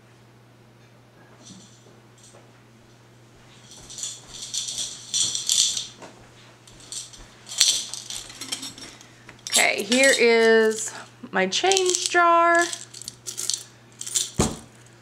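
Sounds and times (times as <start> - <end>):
coins jingling in jar: 3.6 - 6.0, 6.7 - 11.0, 11.7 - 14.7
sharp coin clink: 6.7 - 11.0, 11.7 - 14.6.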